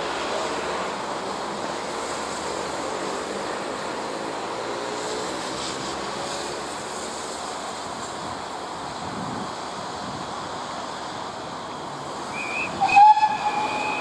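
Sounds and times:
steam hissing: 12.1s - 14.0s.

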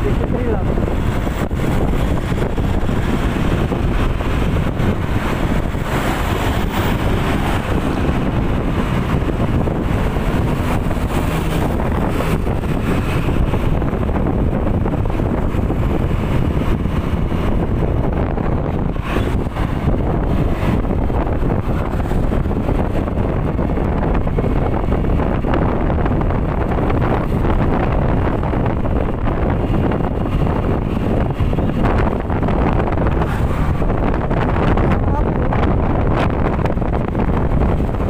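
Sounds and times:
moving vehicle rumble: 0.0s - 38.0s
road noise: 0.0s - 38.0s
wind buffeting microphone: 0.0s - 38.0s.

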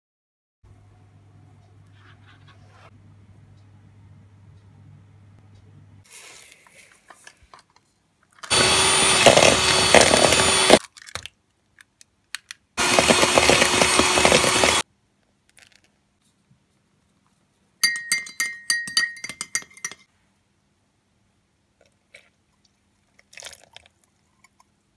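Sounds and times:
electric hand mixer running: 8.5s - 10.8s, 12.8s - 14.8s
spoon clinking against ceramic cup: 17.8s - 20.1s
sugar being poured: 23.1s - 24.0s.

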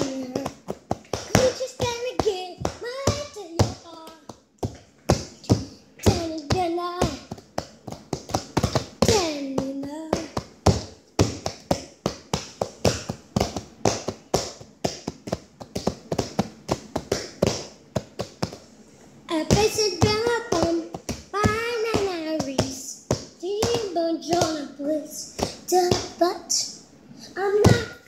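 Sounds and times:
child's wordless vocal sounds: 0.0s - 0.6s, 9.0s - 10.4s.

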